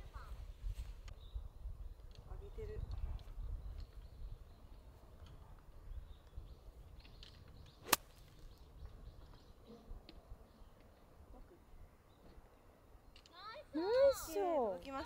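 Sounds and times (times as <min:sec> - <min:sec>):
golf club striking ball: 0:07.8 - 0:08.2.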